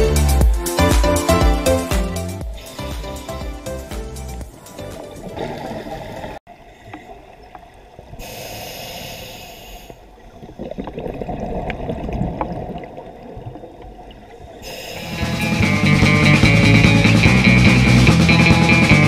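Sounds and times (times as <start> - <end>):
regulator inhale hiss: 2.4 - 3.8, 8.2 - 10.2, 14.6 - 15.7
exhaled bubbles gurgling: 10.0 - 15.2.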